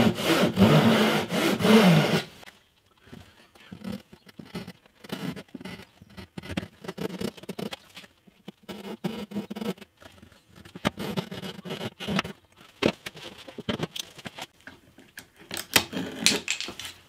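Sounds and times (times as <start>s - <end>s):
saw rasping through wood: 0.0s - 2.4s, 10.8s - 12.4s.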